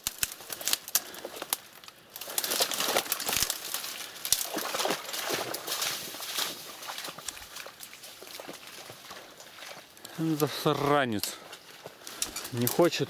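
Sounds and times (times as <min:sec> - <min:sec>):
twigs crackling and snapping: 0:00.0 - 0:13.0.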